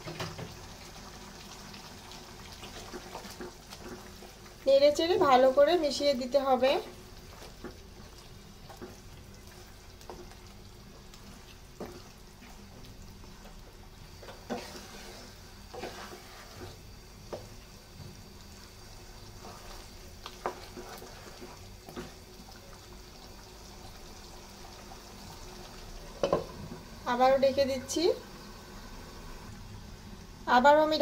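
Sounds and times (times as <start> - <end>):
sauce simmering: 0.0 - 30.5
spatula scraping pan: 14.2 - 17.5, 19.2 - 22.2.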